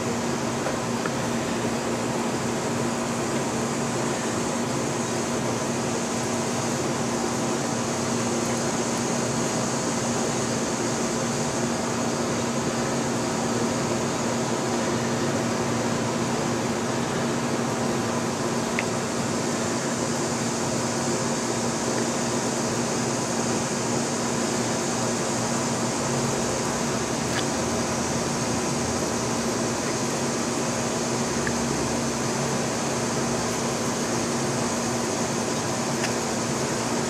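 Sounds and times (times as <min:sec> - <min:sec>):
machine hum with hiss: 0:00.0 - 0:37.0.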